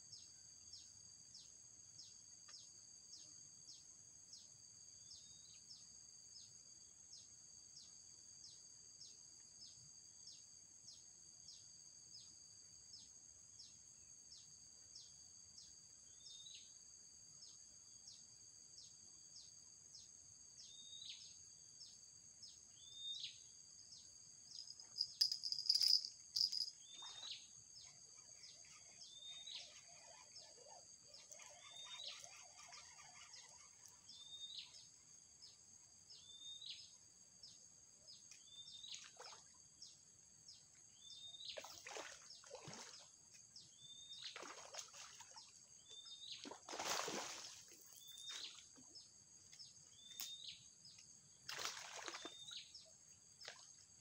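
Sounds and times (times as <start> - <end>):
high-pitched insect drone: 24.5 - 26.8
falling bird chirps: 24.5 - 27.4.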